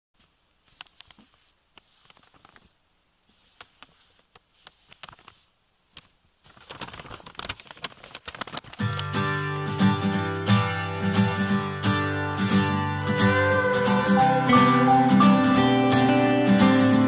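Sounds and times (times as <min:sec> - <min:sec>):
soft rustling and crackling: 0:00.2 - 0:09.2.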